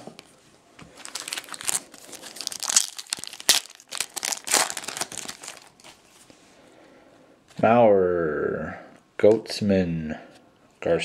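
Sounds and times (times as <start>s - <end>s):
wrapper crinkling and tearing: 0.9s - 6.1s.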